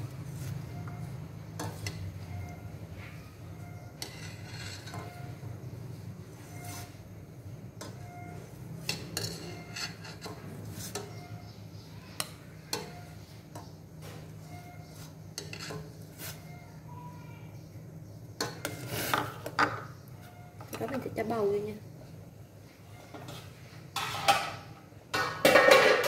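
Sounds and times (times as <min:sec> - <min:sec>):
metal ladle clinking on pot: 0:08.8 - 0:11.2.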